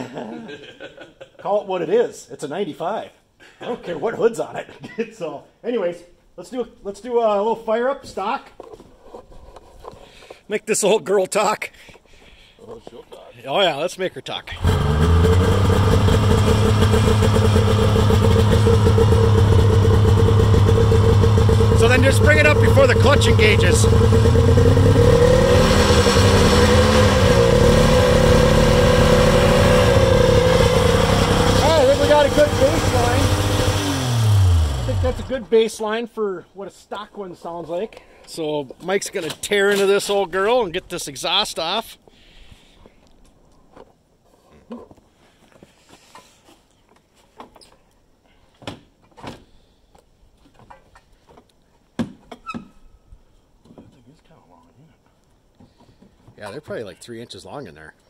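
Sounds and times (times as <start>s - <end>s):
snowmobile engine revving: 14.5s - 35.5s.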